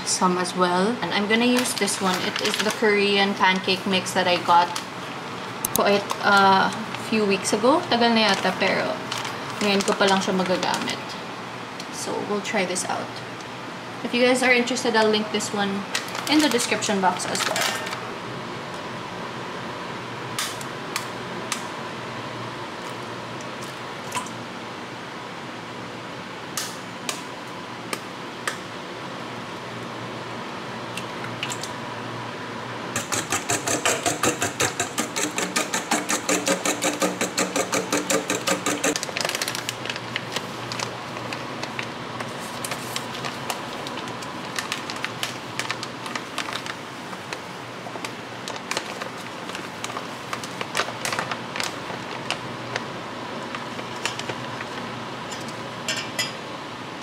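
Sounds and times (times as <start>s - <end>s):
fork beating eggs in metal bowl: 33.0s - 39.0s
utensils tapping metal bowl: 33.0s - 39.0s.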